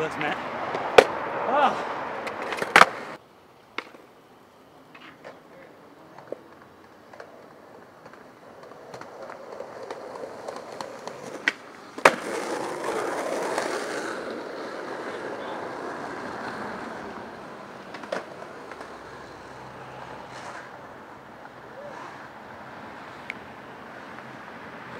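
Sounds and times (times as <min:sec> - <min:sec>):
skateboard wheels rolling: 0:00.0 - 0:24.9
skateboard knock: 0:02.2 - 0:03.2, 0:03.8 - 0:04.1, 0:08.0 - 0:14.1, 0:17.9 - 0:19.0
skateboard cracking: 0:02.2 - 0:04.1, 0:04.9 - 0:22.4.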